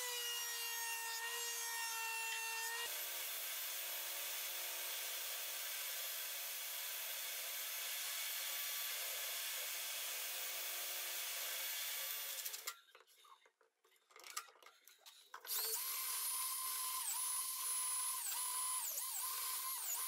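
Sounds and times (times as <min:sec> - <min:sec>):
thickness planer whining: 0:15.5 - 0:20.0.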